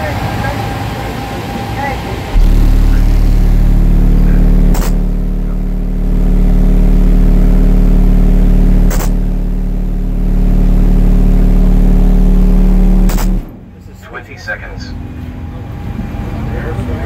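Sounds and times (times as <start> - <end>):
loud deep bass tone: 2.3 - 13.8
brief clicks: 4.7 - 5.0, 8.9 - 9.2, 13.1 - 13.5.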